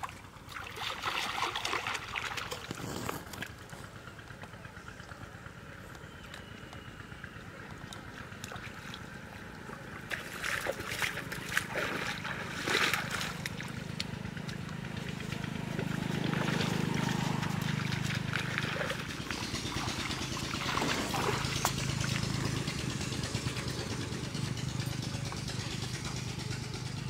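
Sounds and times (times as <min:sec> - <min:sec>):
person wading through water: 0:00.0 - 0:03.6, 0:07.9 - 0:22.7
pond water splashing: 0:00.0 - 0:04.4, 0:06.3 - 0:26.2.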